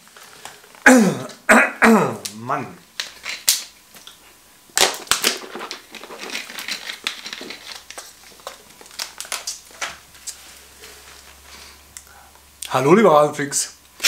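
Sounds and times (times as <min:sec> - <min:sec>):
plastic bottle crinkling: 0:02.9 - 0:10.4.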